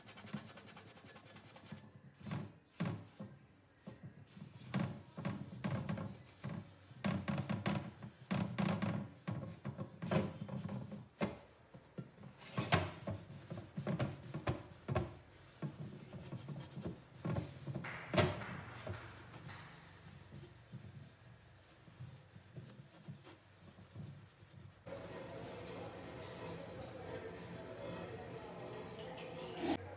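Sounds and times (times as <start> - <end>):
sponge scrubbing a pot: 4.3 - 11.2, 12.5 - 17.9, 18.9 - 28.9.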